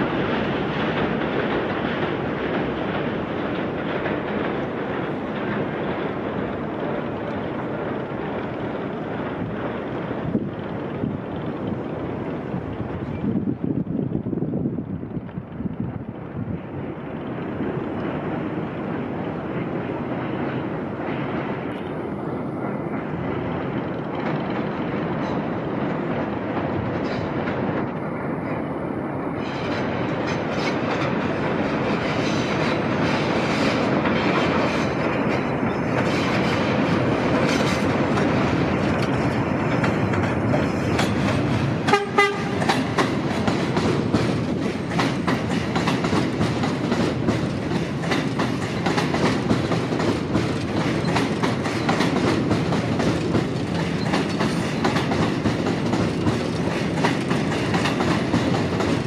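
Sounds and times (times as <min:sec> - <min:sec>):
wheels clacking over rail joints: 0:00.0 - 0:13.8, 0:15.0 - 0:59.0
subway train rumbling: 0:00.0 - 0:59.0
train horn: 0:41.9 - 0:42.7.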